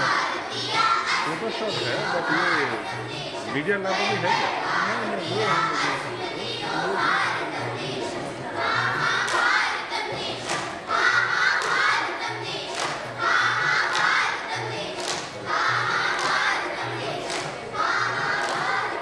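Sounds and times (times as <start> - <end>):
children singing in chorus: 0.0 - 19.0
hand claps: 9.2 - 9.6, 10.3 - 10.8, 11.5 - 12.0, 12.6 - 13.2, 13.8 - 15.4, 16.0 - 19.0.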